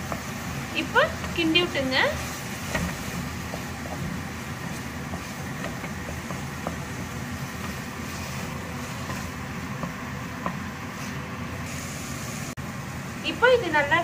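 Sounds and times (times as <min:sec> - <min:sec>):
spatula stirring thick sauce: 0:01.1 - 0:11.3.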